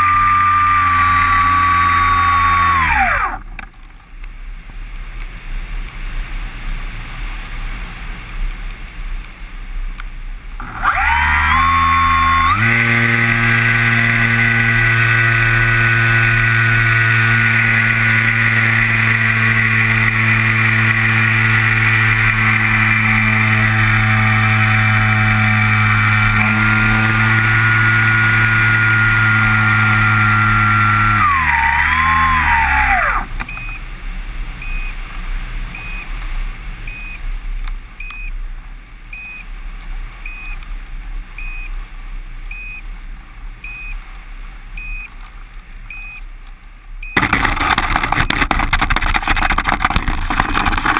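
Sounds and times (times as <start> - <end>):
model airplane motor and propeller: 0.0 - 4.3, 10.0 - 33.9, 47.2 - 50.9
short beeps: 33.5 - 33.8, 34.6 - 35.0, 35.7 - 36.1, 36.9 - 37.2, 38.0 - 38.4, 39.1 - 39.5, 40.2 - 40.6, 41.4 - 41.8, 42.5 - 42.9, 43.6 - 44.0, 44.8 - 45.1, 45.9 - 46.3, 47.0 - 47.2.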